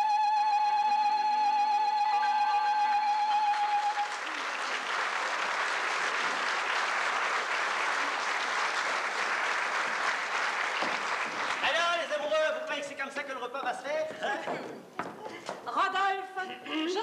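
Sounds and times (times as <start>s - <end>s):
audience applause: 2.4s - 12.4s.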